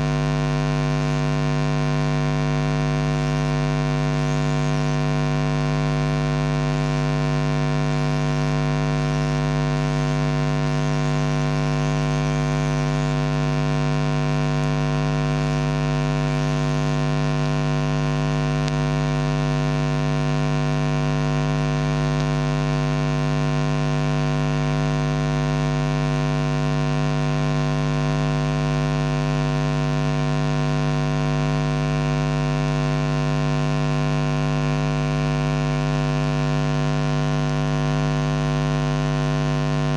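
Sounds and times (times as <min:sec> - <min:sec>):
electrical mains buzz: 0:00.0 - 0:39.9.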